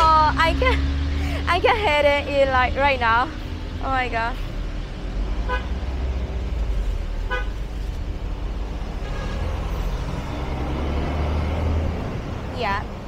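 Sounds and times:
traffic rumble: 0.0 - 13.0
vehicle horn beep: 9.0 - 9.6.

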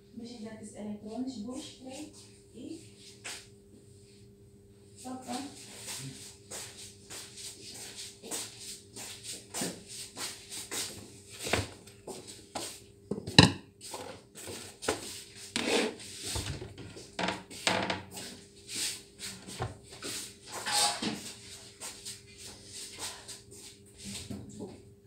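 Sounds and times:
wooden cabinet door knocks: 13.2 - 13.6.

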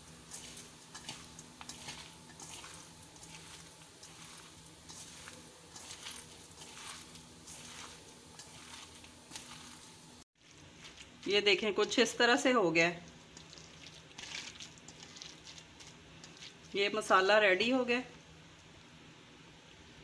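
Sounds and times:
vegetables rustling in a steel bowl: 0.0 - 18.1.

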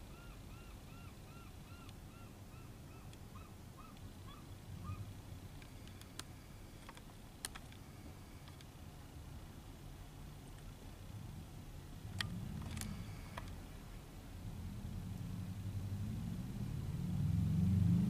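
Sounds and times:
low background rumble: 0.0 - 18.0
gull calling: 0.1 - 5.1
sharp clicks: 5.6 - 7.8.

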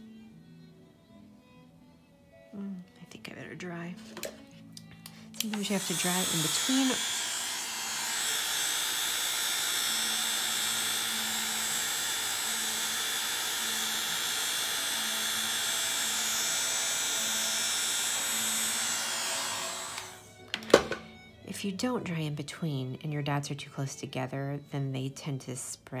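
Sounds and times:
hair dryer blowing with whine: 5.1 - 21.1.

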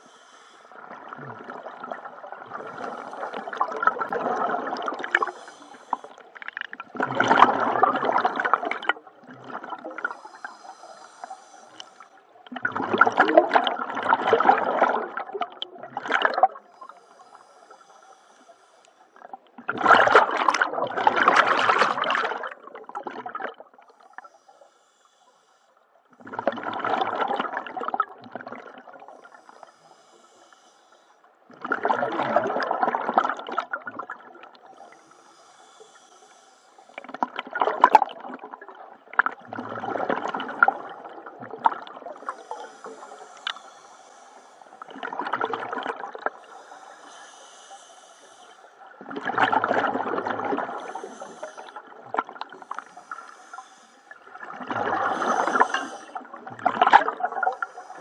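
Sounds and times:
bubbly exhale underwater: 0.9 - 10.2, 12.5 - 16.7, 19.2 - 23.7, 26.2 - 29.0, 31.5 - 34.5, 37.0 - 43.1, 44.9 - 46.4, 49.0 - 52.7, 54.3 - 57.9.

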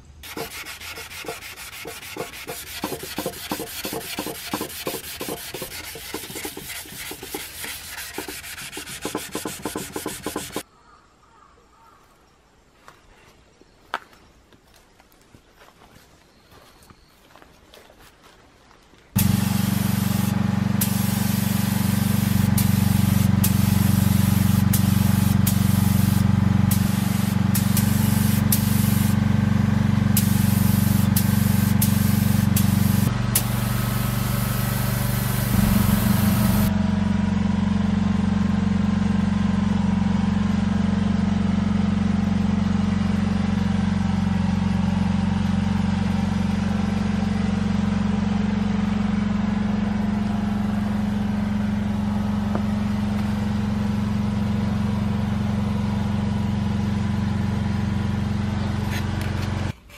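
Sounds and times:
compressor humming: 0.2 - 10.6, 19.2 - 37.8
spray gun hissing: 0.2 - 10.6, 19.2 - 29.2, 30.1 - 36.7.

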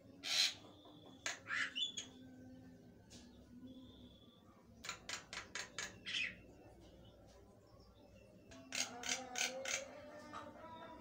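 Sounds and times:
myna bird calling: 0.1 - 2.2.

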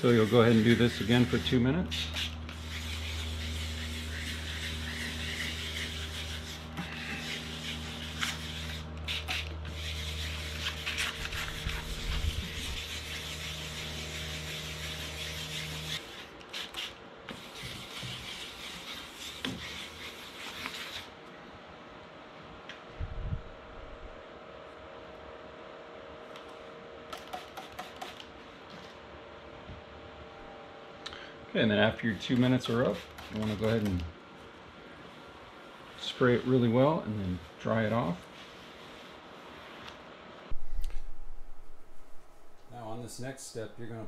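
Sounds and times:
wet sandpaper rubbing on plastic: 0.0 - 21.1, 32.4 - 34.0
low steady hum: 21.2 - 26.9, 40.5 - 44.0.

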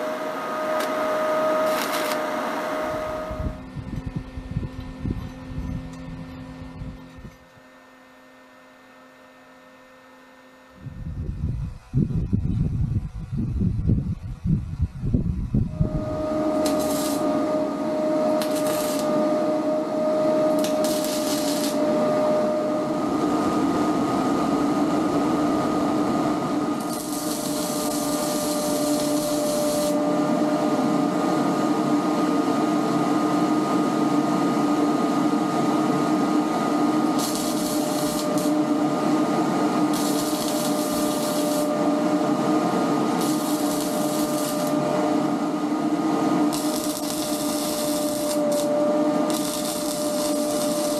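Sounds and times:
machine hum with whine: 0.0 - 50.9
arc welding hiss: 0.7 - 3.2, 16.0 - 17.5, 18.3 - 19.2, 20.5 - 21.9, 26.8 - 30.0, 37.0 - 38.6, 39.8 - 41.8, 43.1 - 45.0, 46.5 - 50.9.

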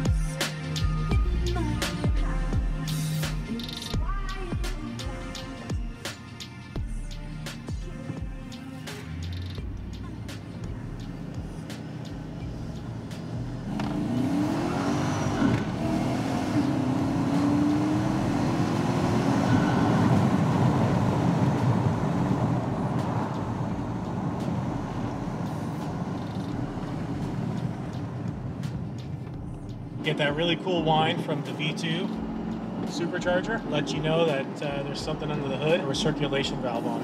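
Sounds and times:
engine accelerating from inside cab: 6.8 - 37.0
supercharger whine: 9.7 - 37.0.

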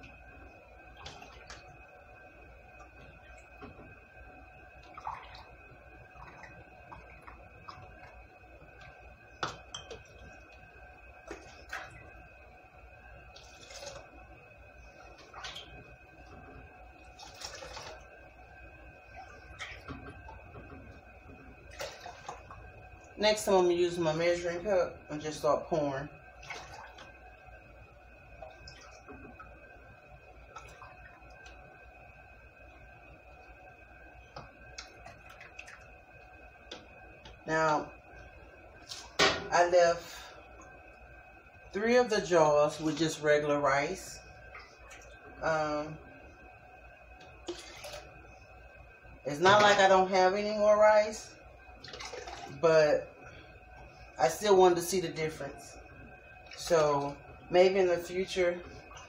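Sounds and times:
faint steady hum: 0.0 - 59.0
water splashing: 4.7 - 10.6, 11.2 - 12.2, 13.2 - 18.3, 19.0 - 27.3, 28.3 - 29.8, 30.4 - 31.7, 34.4 - 40.4, 47.4 - 48.3, 51.8 - 53.1, 56.4 - 59.0.

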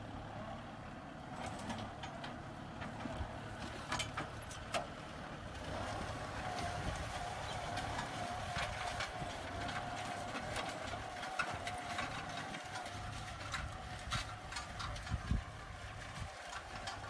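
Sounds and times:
tractor diesel engine under load: 0.0 - 17.0
clicks and clanks: 3.9 - 4.9.

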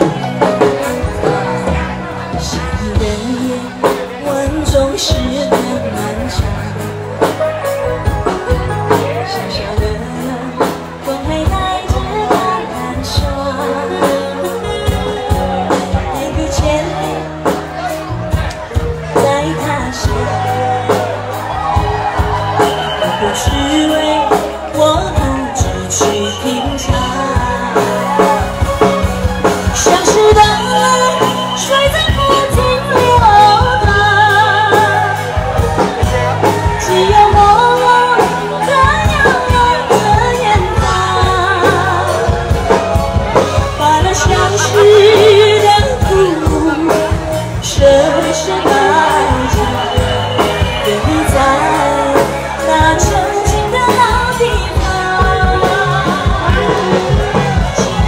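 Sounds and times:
pop backing track with bass: 0.0 - 58.0
woman singing into microphone: 1.0 - 7.3, 8.9 - 17.6, 19.0 - 21.2, 22.7 - 28.4, 29.6 - 58.0.

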